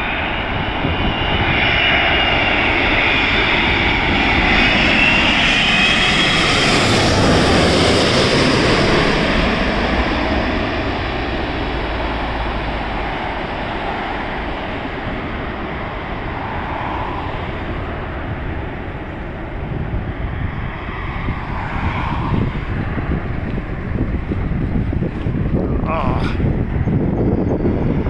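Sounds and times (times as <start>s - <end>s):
jet engines roaring: 0.0s - 28.0s
wind rumbling on microphone: 0.0s - 28.0s
car passing: 6.0s - 25.6s.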